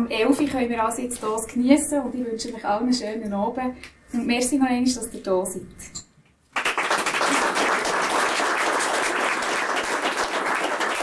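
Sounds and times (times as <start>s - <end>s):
audience applauding: 6.5s - 11.0s.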